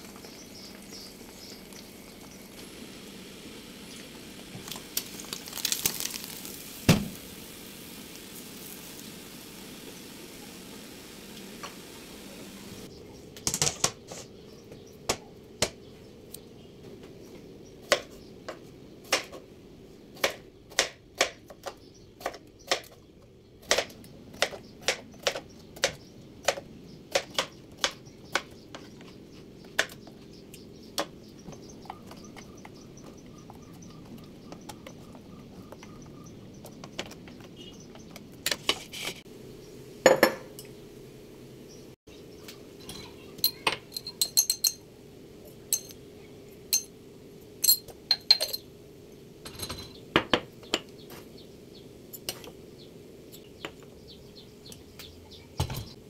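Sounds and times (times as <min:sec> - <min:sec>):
knocks and clinks: 0:43.4 - 0:44.8, 0:45.7 - 0:46.0, 0:47.6 - 0:48.6.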